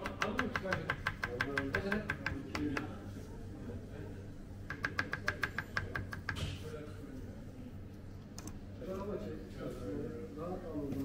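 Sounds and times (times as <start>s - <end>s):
knife chopping on plastic board: 0.0s - 2.9s, 4.7s - 6.6s.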